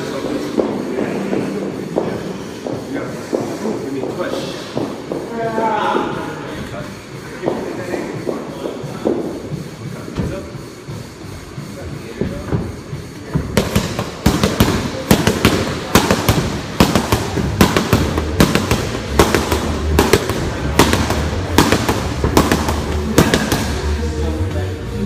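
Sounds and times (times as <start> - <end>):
boxing gloves smacking focus mitts: 13.5 - 23.9.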